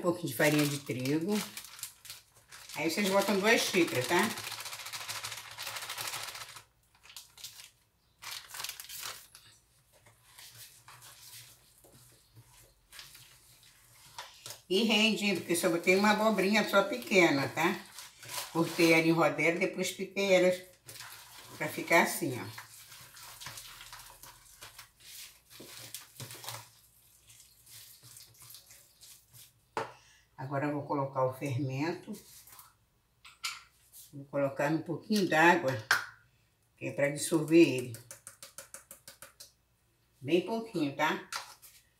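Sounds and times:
paper packet crinkling: 0.2s - 9.6s, 15.4s - 19.2s, 20.6s - 27.2s
fork stirring wet batter: 9.9s - 15.7s, 20.5s - 29.6s, 37.4s - 39.6s.

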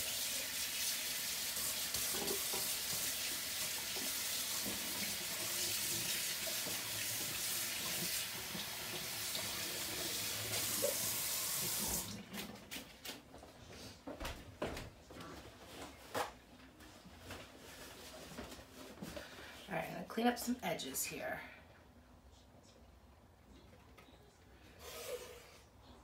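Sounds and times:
water running from sink tap: 0.0s - 12.2s.

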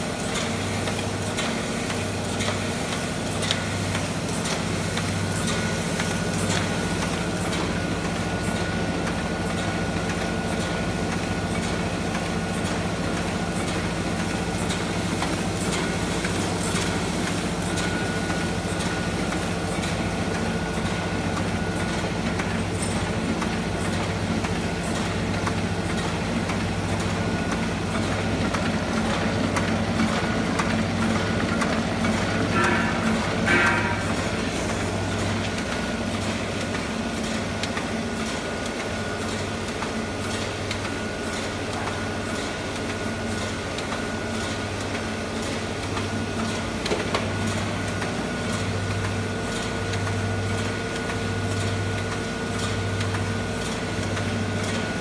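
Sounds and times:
printing press running: 0.0s - 55.0s.

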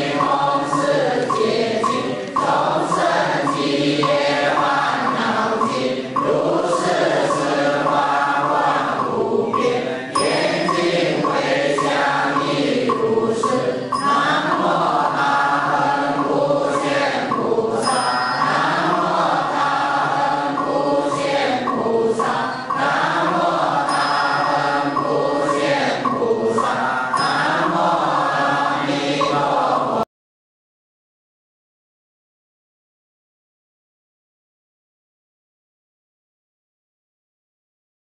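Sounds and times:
voices chanting: 0.0s - 30.1s
musical backing: 0.3s - 29.7s.

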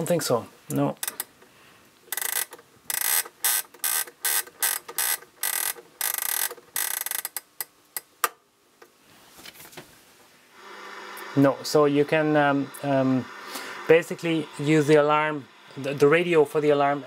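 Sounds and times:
clock knob ratcheting clicks: 2.1s - 8.1s.

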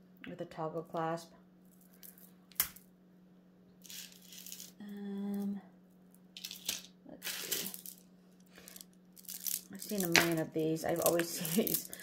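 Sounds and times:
stone beads clicking and rattling: 3.8s - 4.8s, 6.4s - 12.0s.

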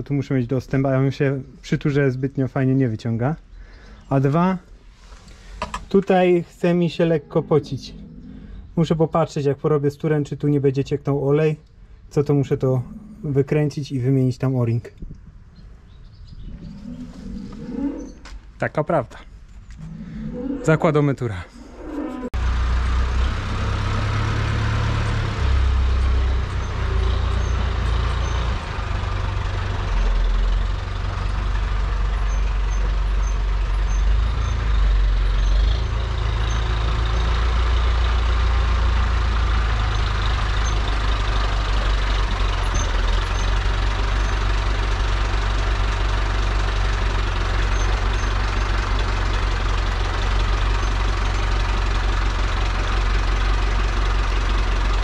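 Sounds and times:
tractor diesel engine running: 22.3s - 55.0s.

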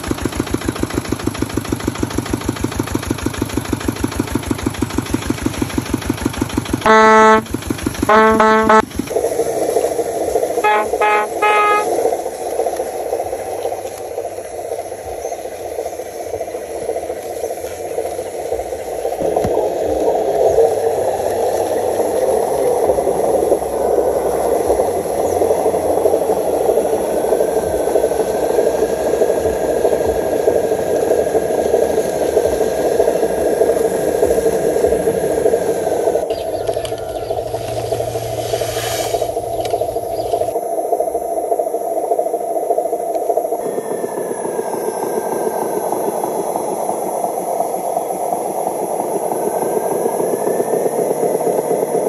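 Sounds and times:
vehicle horn toots: 6.9s - 7.5s, 8.1s - 8.8s, 10.6s - 12.0s.

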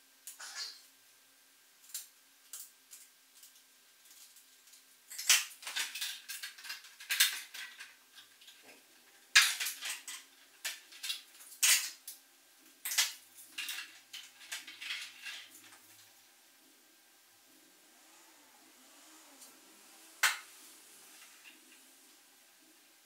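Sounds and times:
plastic parts clicking and scraping: 5.1s - 12.0s, 12.8s - 16.0s.

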